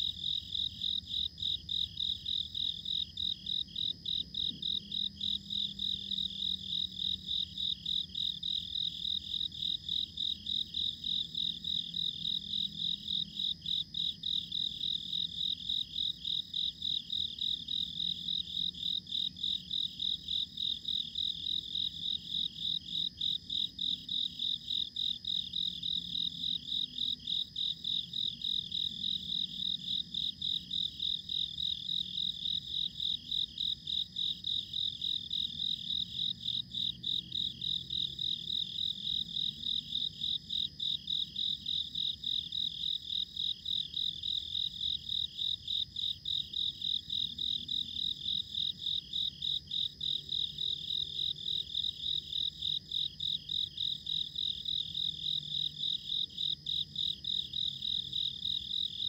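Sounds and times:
night insects chirping: 0.0s - 59.0s.

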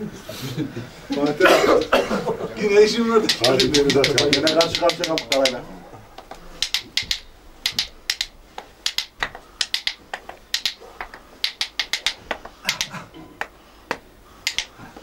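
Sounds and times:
wooden spoons clacking together: 3.2s - 5.6s.

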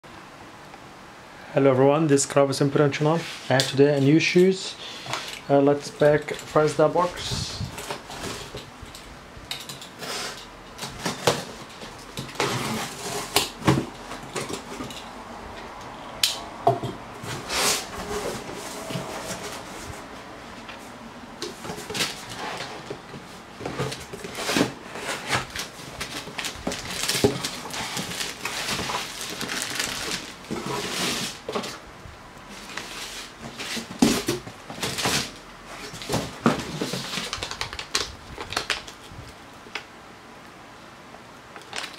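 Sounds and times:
cardboard box being unpacked: 10.1s - 14.8s, 17.2s - 20.1s, 21.5s - 31.8s, 32.5s - 39.1s.

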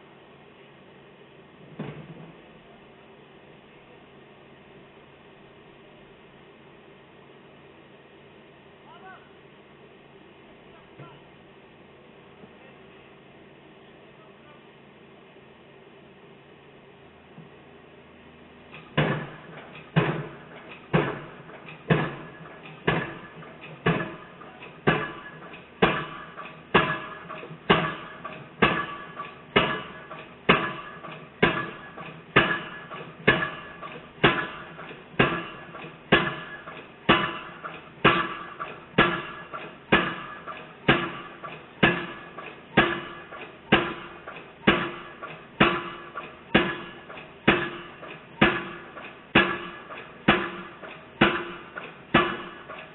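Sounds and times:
piling hammer clanging on steel pile: 18.7s - 52.9s.

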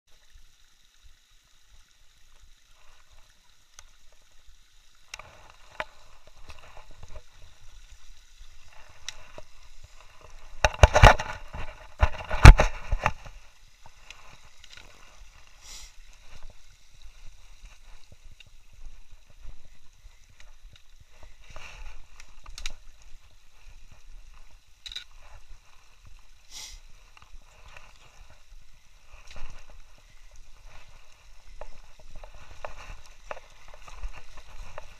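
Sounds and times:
footsteps: 8.5s - 34.9s
rubbing and knocking on microphone: 10.1s - 13.4s.

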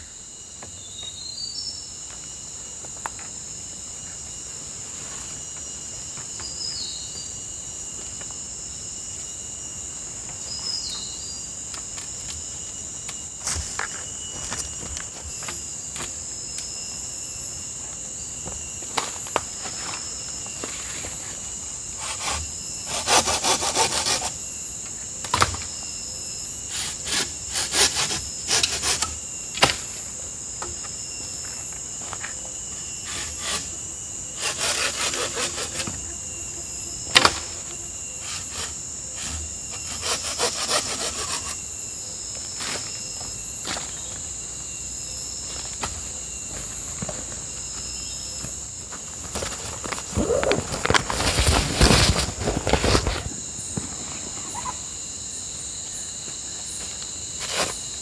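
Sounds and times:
high insect drone: 0.0s - 58.0s
bamboo poles rasping: 22.0s - 24.4s, 26.7s - 29.8s, 33.0s - 33.8s, 34.4s - 36.1s, 38.2s - 41.6s.

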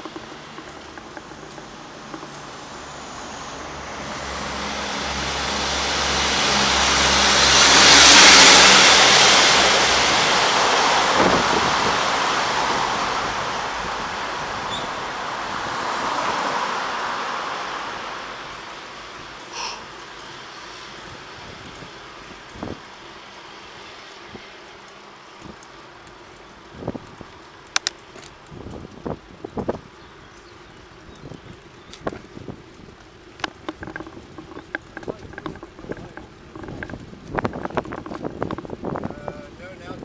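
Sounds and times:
car passing: 0.0s - 26.3s
passing traffic: 0.0s - 40.0s.

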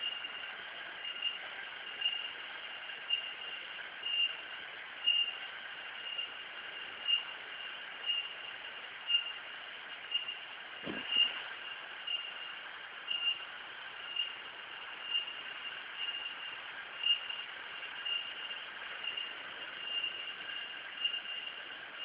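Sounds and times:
insects droning and chirping: 0.0s - 22.0s
low thump: 10.8s - 11.4s.

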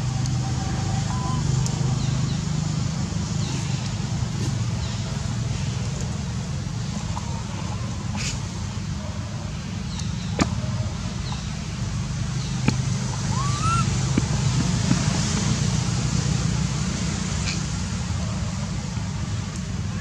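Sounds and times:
rising and falling chirp: 13.2s - 14.0s.

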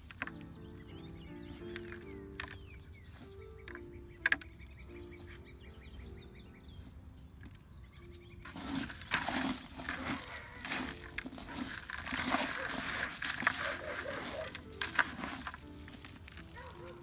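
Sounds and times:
faint bird chirps: 0.4s - 8.5s
hand stirring compost in bucket: 1.4s - 4.5s, 8.4s - 17.0s.

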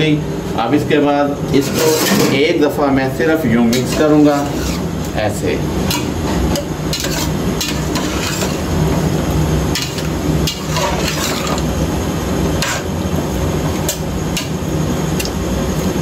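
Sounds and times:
steady low hum: 0.0s - 16.0s
metal spatula scraping a pot: 1.6s - 2.4s, 3.7s - 5.1s, 5.8s - 8.8s, 9.7s - 11.7s, 12.6s - 12.9s.

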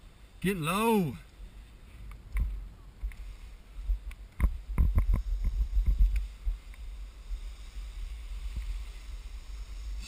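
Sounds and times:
ski knocks and clatters: 4.4s - 6.8s
skis sliding through slushy snow: 5.2s - 10.0s.

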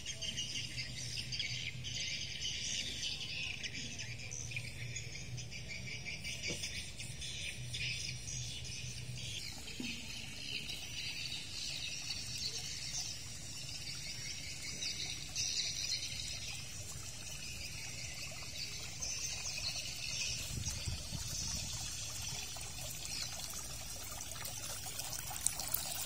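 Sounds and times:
fountain water splashing: 12.0s - 26.0s.

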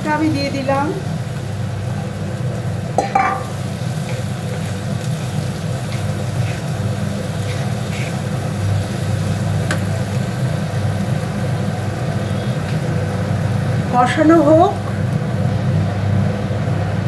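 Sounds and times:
potatoes sizzling in a pan: 0.0s - 16.8s
wooden spatula scraping: 4.0s - 9.0s.

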